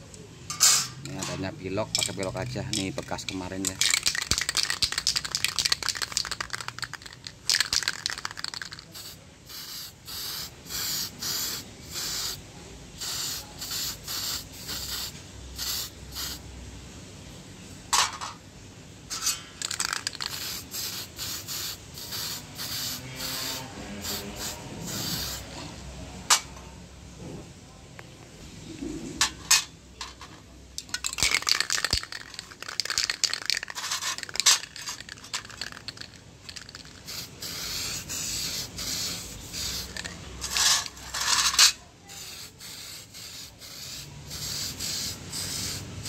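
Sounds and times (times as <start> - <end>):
spray paint can hissing: 2.0 - 12.4, 13.0 - 16.4, 19.6 - 25.5, 31.0 - 46.0.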